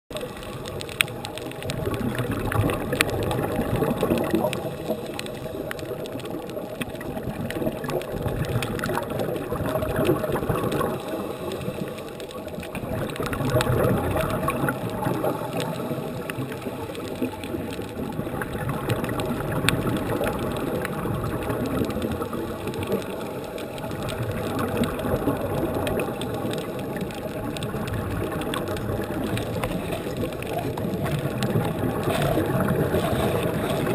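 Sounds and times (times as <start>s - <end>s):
underwater regulator bubbles: 0.1s - 33.9s.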